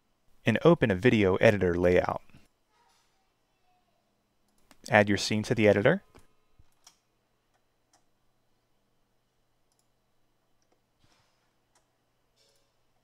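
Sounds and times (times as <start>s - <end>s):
computer mouse clicks: 9.7s - 9.9s.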